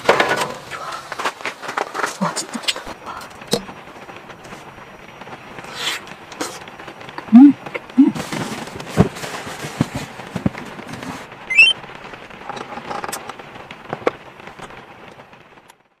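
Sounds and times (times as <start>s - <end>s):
pillows and blanket rustling: 8.0s - 11.4s
short rising chirp: 11.5s - 11.8s.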